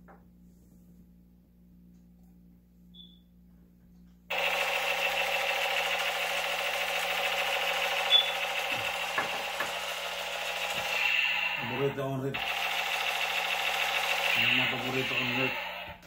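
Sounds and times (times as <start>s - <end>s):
toy gun electronic buzzing: 4.3s - 16.0s.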